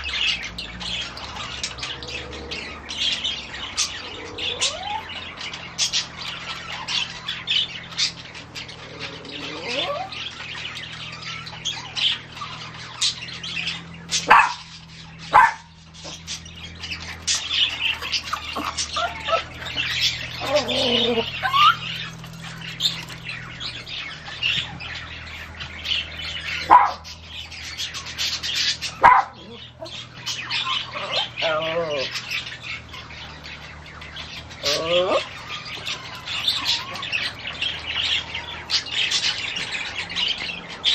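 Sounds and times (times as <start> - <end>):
birds chirping and squawking: 0.0 - 40.9.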